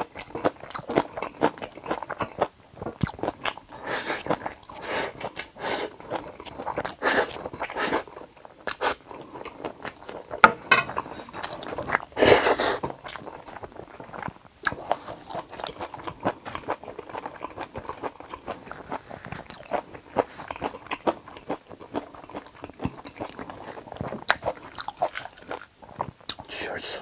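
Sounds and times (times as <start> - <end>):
chewing noodles: 0.0 - 26.6.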